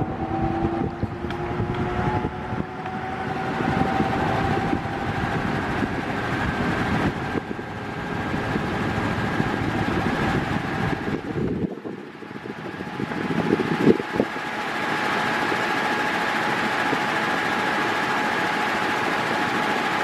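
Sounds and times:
wind gusting on microphone: 0.0s - 14.4s
electric fan rushing air: 0.0s - 20.0s
faint motor hum: 0.0s - 20.0s.

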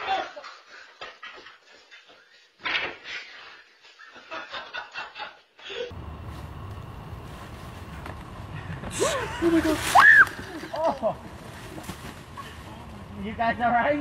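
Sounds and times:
steady low rumble: 5.9s - 13.7s
man laughing: 9.0s - 9.8s, 10.4s - 11.2s.

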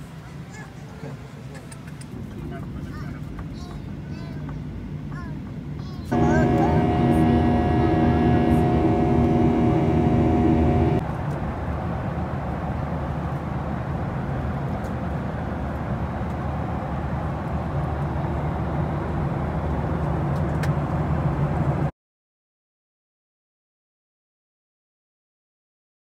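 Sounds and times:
jet engine and airflow roar: 6.1s - 11.0s
multi-tone hum: 6.1s - 11.0s.

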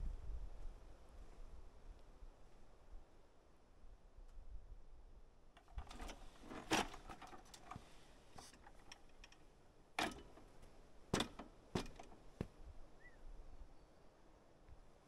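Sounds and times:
metal steps clanking: 5.6s - 9.4s, 10.0s - 12.5s.

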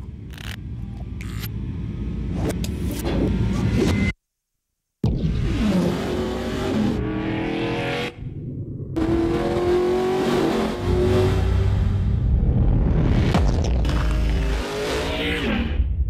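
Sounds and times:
sports car engine accelerating: 9.0s - 12.6s.

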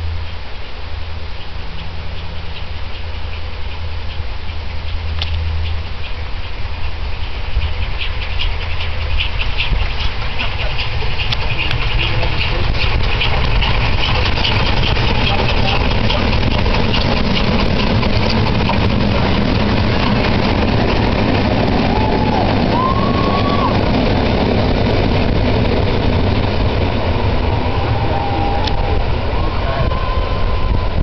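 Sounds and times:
train rumbling past: 0.0s - 31.0s.

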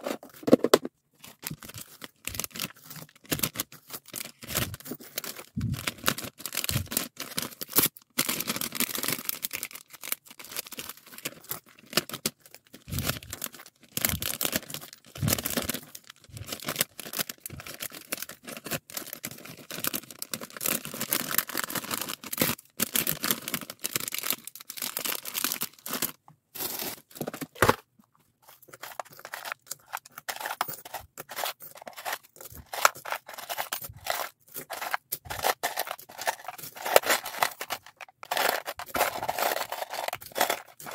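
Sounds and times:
plastic packaging crinkling: 0.0s - 27.8s, 28.5s - 40.9s
keychains rattling in plastic box: 28.7s - 40.9s.

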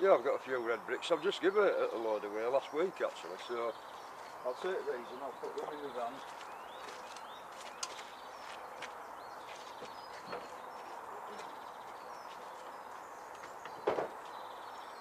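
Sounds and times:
small birds chirping: 0.0s - 15.0s
faint knock: 13.4s - 14.2s.

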